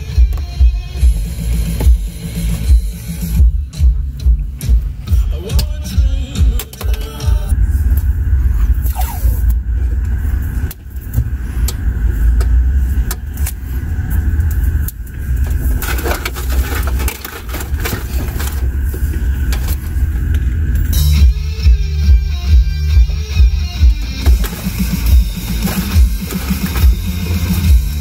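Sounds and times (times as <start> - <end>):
steady low rumble: 0.0 - 28.0
guitar music: 21.0 - 28.0.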